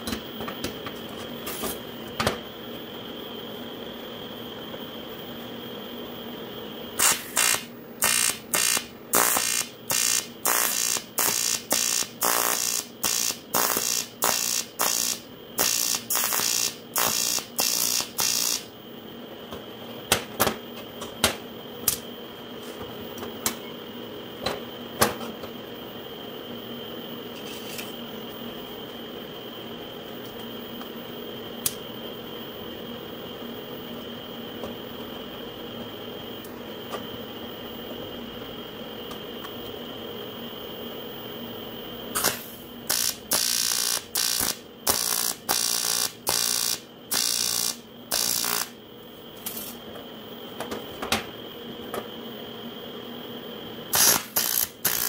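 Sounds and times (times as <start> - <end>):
welding arc pulsing: 7.0 - 18.8, 42.2 - 48.8, 53.9 - 55.0.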